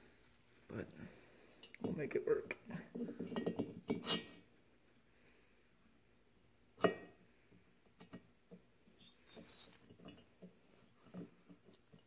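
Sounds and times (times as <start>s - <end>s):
metal clinks and knocks: 3.0s - 4.4s.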